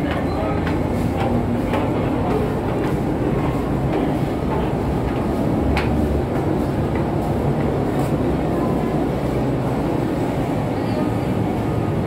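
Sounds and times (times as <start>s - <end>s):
footsteps on steel stairs: 0.0s - 8.9s
ship machinery rumbling: 0.0s - 12.0s.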